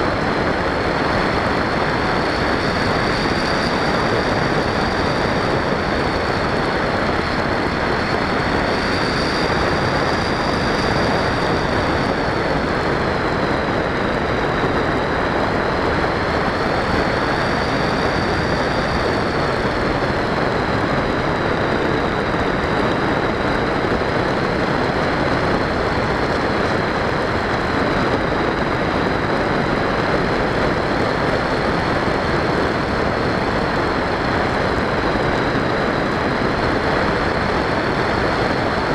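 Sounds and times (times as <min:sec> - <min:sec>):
electric motor and propeller whine: 0:00.0 - 0:38.9.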